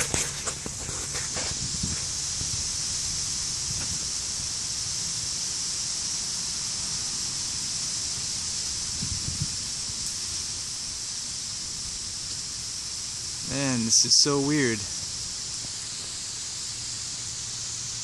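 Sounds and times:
wind rumble on microphone: 0.0 - 4.7, 8.0 - 12.2
steady high hiss: 0.0 - 18.0.

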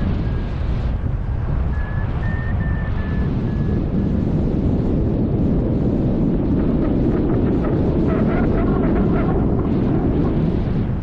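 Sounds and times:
wind rushing over microphone: 0.0 - 11.0.

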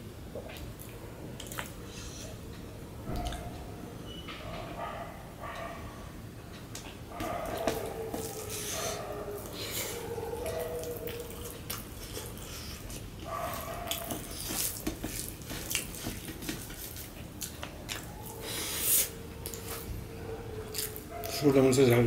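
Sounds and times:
wet chewing and lip smacks: 0.4 - 1.8, 9.4 - 19.9
fingers mixing food on plate: 6.7 - 18.1.

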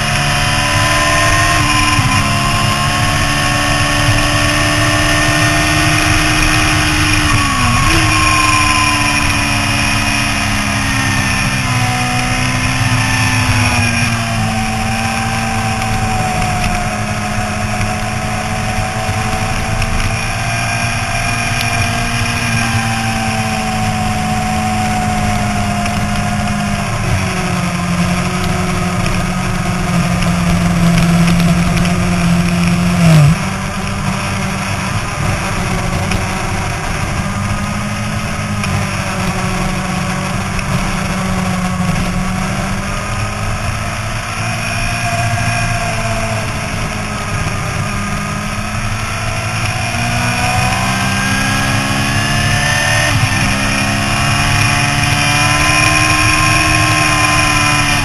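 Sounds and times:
motorcycle engine running hard: 0.0 - 58.0
wind rush: 0.0 - 58.0.

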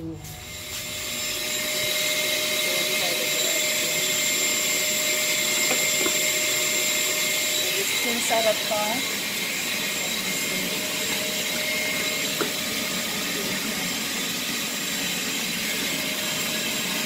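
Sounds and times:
vacuum cleaner running: 0.0 - 17.0.

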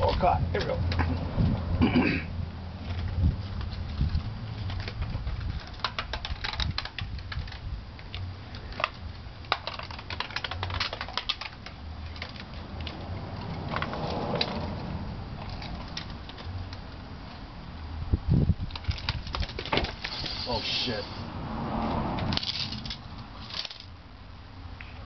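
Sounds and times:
irregular clicking and ticking: 2.9 - 17.0
scraping rustle: 18.7 - 21.3, 22.0 - 23.9.

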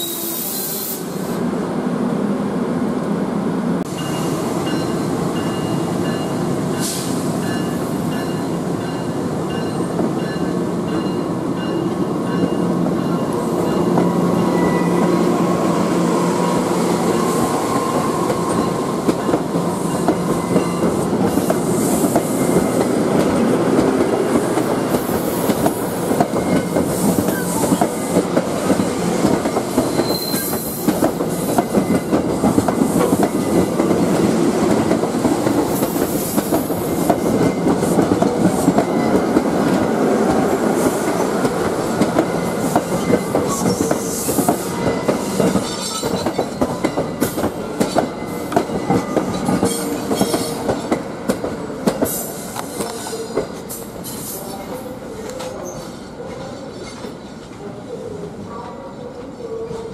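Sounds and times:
train wheels rumbling on rails: 3.8 - 57.8
high-pitched wheel squeals: 29.9 - 30.8.

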